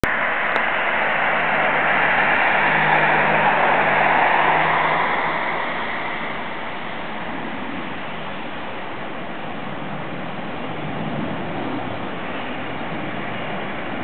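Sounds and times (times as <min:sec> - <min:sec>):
vehicle tyres rushing past: 0:00.0 - 0:08.6.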